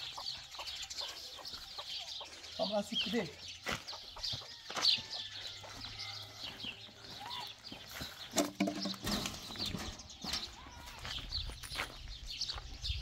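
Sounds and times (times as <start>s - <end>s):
chicken clucking: 0.0s - 2.8s
small birds chirping: 0.0s - 13.0s.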